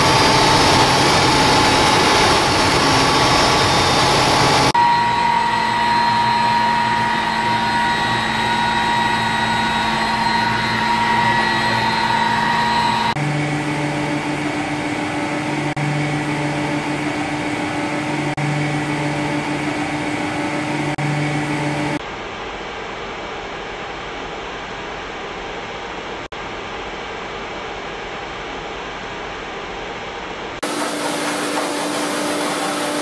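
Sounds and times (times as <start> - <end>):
pumps with lower hum: 0.0 - 22.0, 30.6 - 33.0
pool pumps humming with whine: 0.0 - 33.0.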